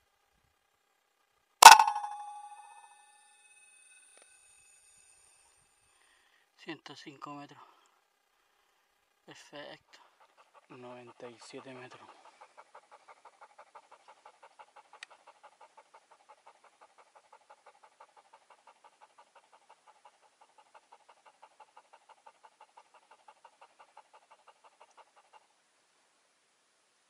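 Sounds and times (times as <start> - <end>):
sharp click: 1.6 - 2.8
dog panting: 9.4 - 25.6.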